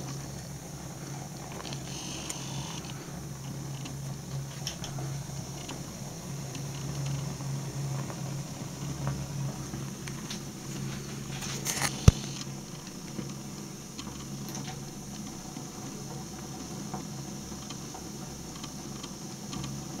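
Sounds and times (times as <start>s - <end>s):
fire crackling and ticking: 0.0s - 20.0s
steady low hum: 0.0s - 20.0s
brief rustle: 10.2s - 12.5s
sharp click: 11.6s - 12.5s.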